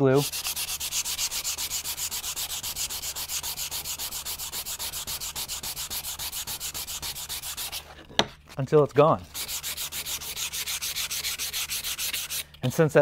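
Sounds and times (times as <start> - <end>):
sandpaper sanding wood: 0.0 - 8.0, 8.8 - 13.0.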